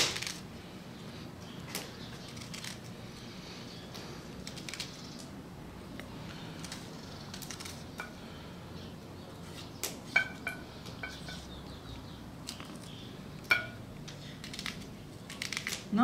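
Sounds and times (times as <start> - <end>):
knife clinking on bowl: 13.5 - 13.8.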